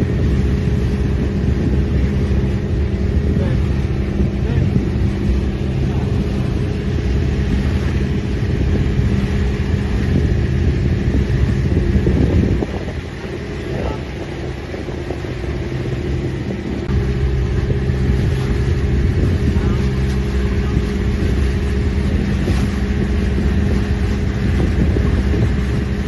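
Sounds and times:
boat engine droning: 0.0 - 26.0
water noise: 0.0 - 26.0
wind: 0.0 - 26.0.

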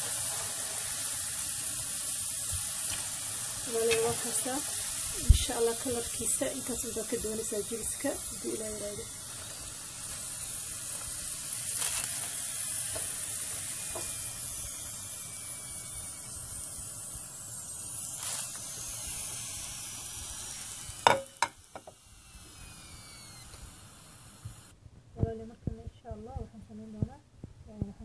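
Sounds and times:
hot oil sizzling: 0.0 - 24.7.

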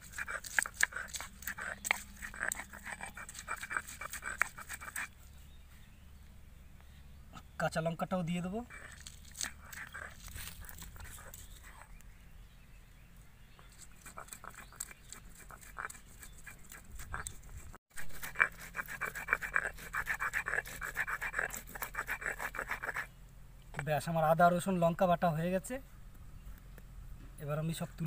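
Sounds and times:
stone roller grinding paste: 0.0 - 5.1, 13.8 - 23.1.

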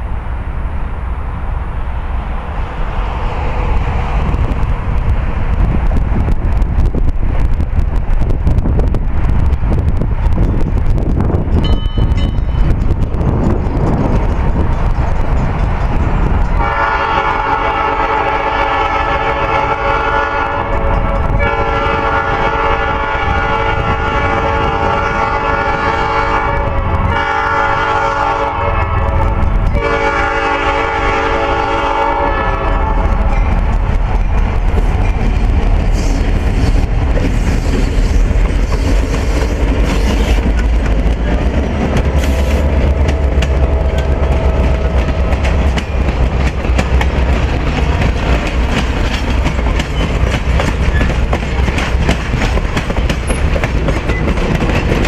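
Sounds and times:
train cars passing: 0.0 - 55.0
locomotive air horn blasts: 16.6 - 33.2.

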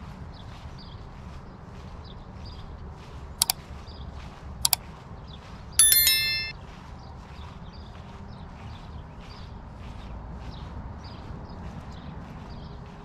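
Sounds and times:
mouse clicks: 5.8 - 6.5
notification bell ding: 5.8 - 6.5.

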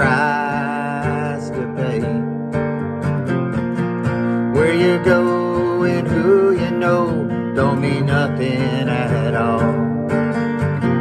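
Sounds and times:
man singing: 0.0 - 2.4, 4.3 - 10.2
acoustic guitar strumming: 0.0 - 11.0.

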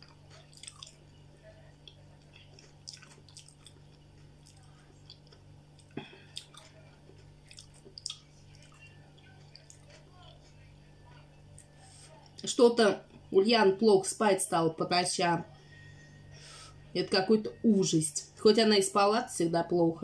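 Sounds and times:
wet mouth chewing sounds: 0.0 - 1.0, 1.8 - 10.0
low hum: 0.0 - 20.0.

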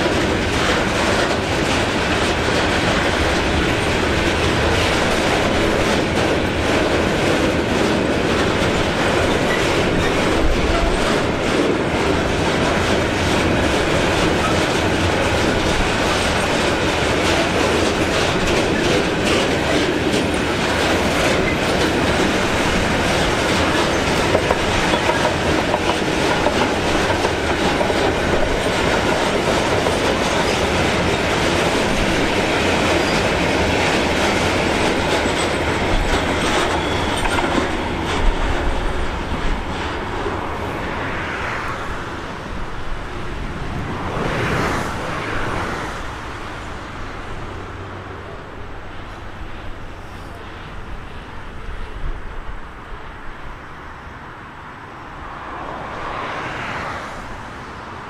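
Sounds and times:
train wheels clattering over rails: 0.0 - 47.5
freight train rumbling past: 0.0 - 58.0.

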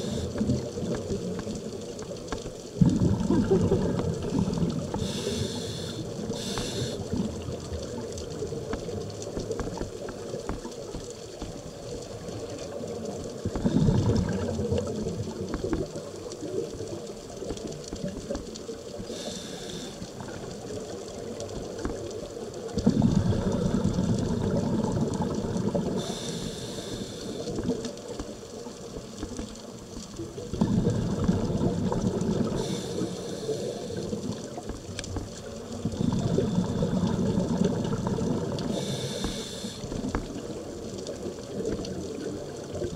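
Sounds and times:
exhaled bubbles underwater: 0.0 - 42.9
steady underwater hiss: 0.0 - 42.9
scuba regulator hissing: 5.0 - 7.0, 38.8 - 39.9.

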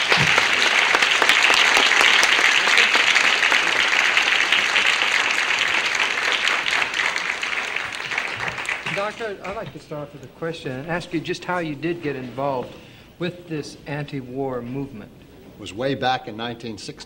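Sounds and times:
audience applauding: 0.0 - 12.4.

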